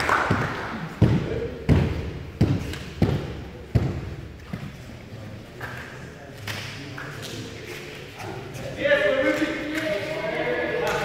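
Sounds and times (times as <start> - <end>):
applause: 0.0 - 0.6.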